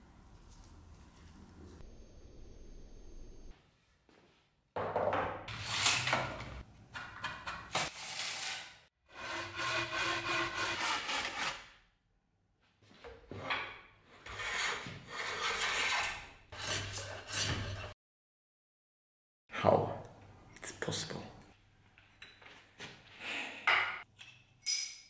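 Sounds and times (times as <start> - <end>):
hand tool shaping wood: 9.1 - 11.7, 14.2 - 17.9.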